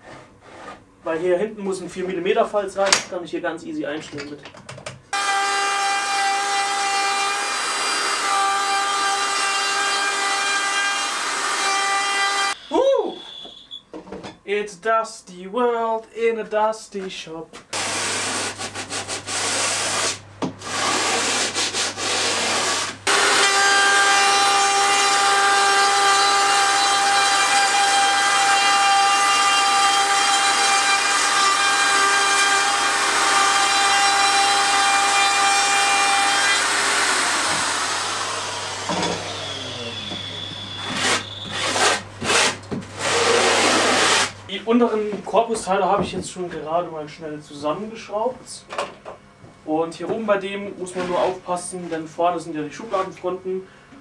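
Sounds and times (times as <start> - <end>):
sanding block rubbing wood: 17.8 - 23.0
electric router whining: 23.0 - 41.8.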